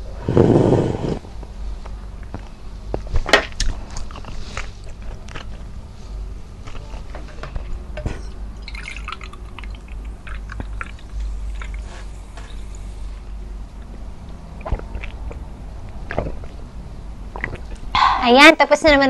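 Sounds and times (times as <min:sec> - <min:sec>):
drink poured into glass: 0:08.6 - 0:11.0
wet mouth clicks: 0:14.6 - 0:16.6, 0:17.3 - 0:17.9.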